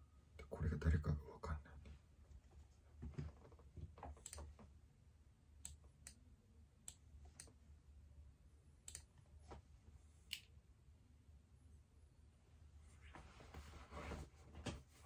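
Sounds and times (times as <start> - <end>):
faint sharp clicks: 8.8 - 9.1.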